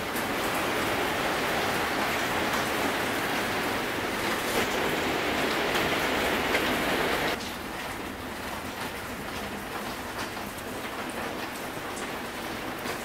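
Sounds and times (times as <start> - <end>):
rain falling: 0.0 - 13.0.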